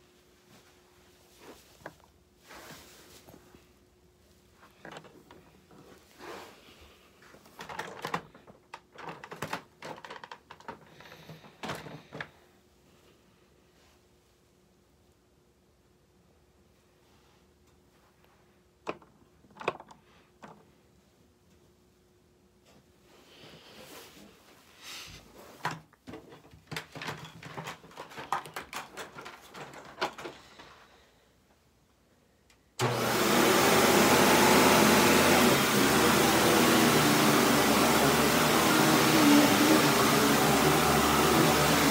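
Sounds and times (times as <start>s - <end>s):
vacuum cleaner clicks and knocks: 25.7s - 30.4s.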